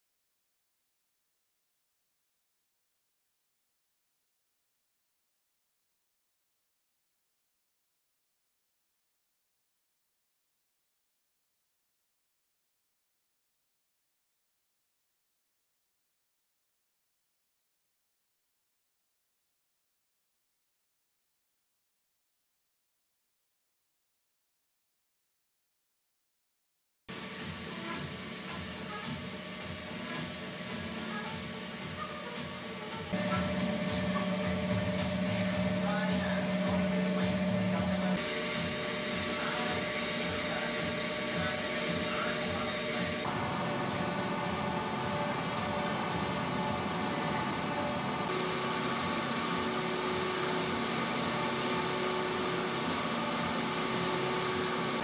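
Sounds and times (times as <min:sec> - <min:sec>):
high steady whine: 0:27.1 - 0:55.0
lathe machine hum: 0:27.2 - 0:55.0.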